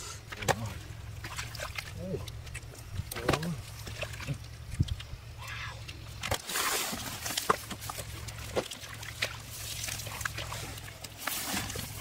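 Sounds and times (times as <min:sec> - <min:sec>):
hands squelching in mud: 0:05.8 - 0:12.0
rustling stalks: 0:05.8 - 0:12.0.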